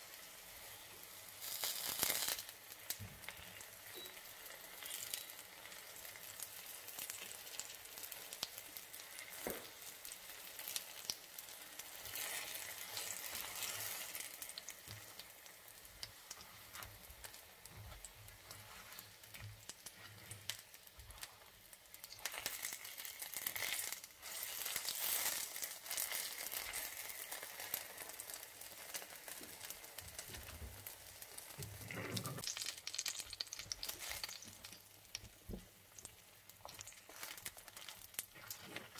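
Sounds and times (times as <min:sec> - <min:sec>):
rolls sizzling in frying oil: 0:00.0 - 0:38.9.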